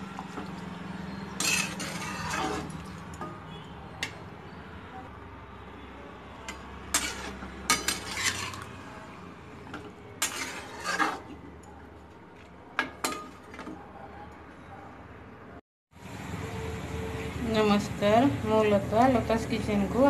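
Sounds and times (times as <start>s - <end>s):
metal ladle scraping a pan: 0.0s - 4.3s, 6.4s - 12.1s.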